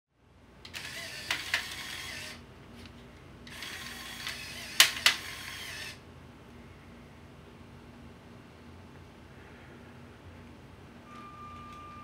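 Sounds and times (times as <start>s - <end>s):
small motor whirring: 0.7s - 2.4s, 3.5s - 6.0s
sharp mechanism clicks: 3.5s - 6.0s.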